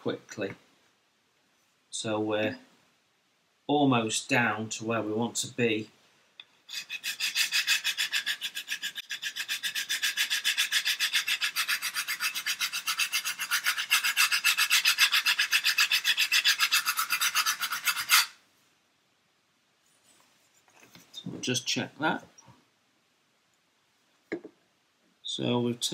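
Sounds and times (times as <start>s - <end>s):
sanding block rasping on wood: 6.7s - 18.4s.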